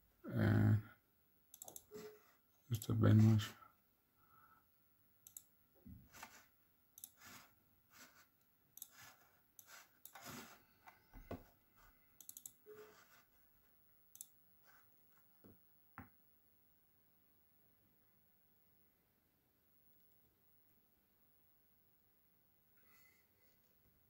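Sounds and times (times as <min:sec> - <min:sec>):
faint irregular clicks: 0:01.5 - 0:01.9, 0:05.2 - 0:05.6, 0:07.0 - 0:07.5, 0:08.4 - 0:10.2, 0:12.2 - 0:12.6, 0:14.1 - 0:14.4.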